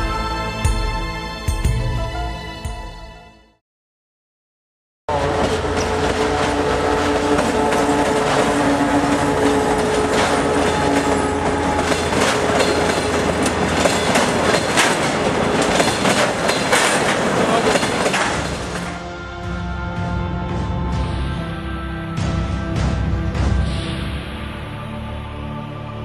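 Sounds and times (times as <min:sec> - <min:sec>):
diesel locomotive engine running: 0:05.1 - 0:25.3
train wheels clacking over rail joints: 0:05.2 - 0:19.0.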